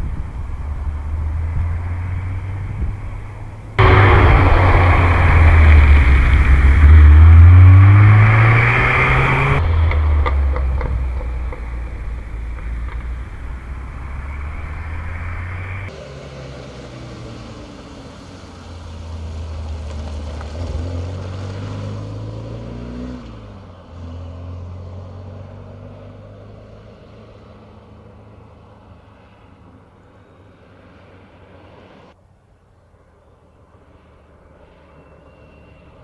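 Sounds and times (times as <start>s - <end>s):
distant engine: 0.0s - 23.4s
car engine accelerating past: 0.6s - 29.4s.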